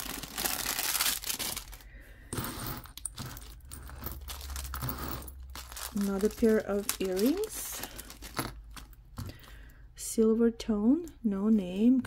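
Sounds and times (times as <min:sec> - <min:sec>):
plastic bag crinkling: 0:00.0 - 0:02.0, 0:02.9 - 0:09.5
metal jewelry clinking: 0:02.3 - 0:09.4.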